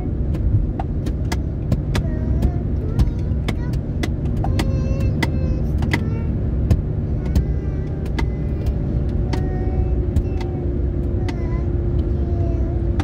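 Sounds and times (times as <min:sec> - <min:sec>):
car road and engine noise: 0:00.0 - 0:13.0
sharp clicks: 0:00.3 - 0:10.6.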